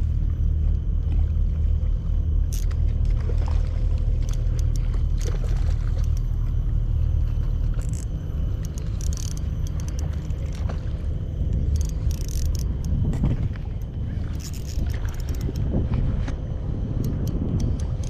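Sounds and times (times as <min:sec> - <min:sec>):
light clicks and ticks: 0:07.4 - 0:10.8, 0:11.5 - 0:15.7, 0:17.0 - 0:18.0
wind buffeting microphone: 0:10.0 - 0:18.0.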